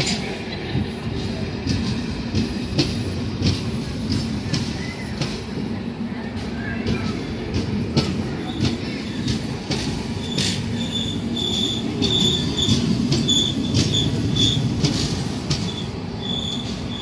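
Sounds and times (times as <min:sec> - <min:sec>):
train rumbling past: 0:00.0 - 0:17.0
high wheel squeal: 0:10.2 - 0:14.7, 0:15.6 - 0:17.0.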